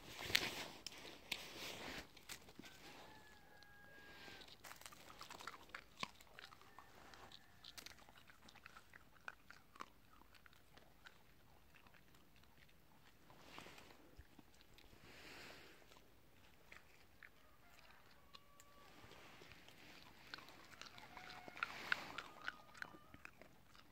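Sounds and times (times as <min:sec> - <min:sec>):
dog crunching pods: 0:04.2 - 0:15.0, 0:15.8 - 0:23.9.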